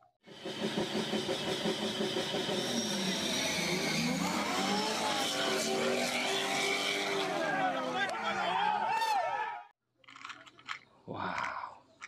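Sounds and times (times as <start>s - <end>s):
diesel truck engine revving: 0.6s - 8.4s
sports car engine revving: 2.5s - 8.1s.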